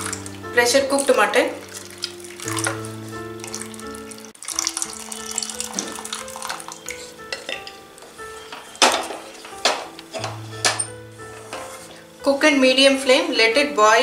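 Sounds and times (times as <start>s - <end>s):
liquid pouring into a pan: 0.0s - 7.1s
background music: 0.0s - 14.0s.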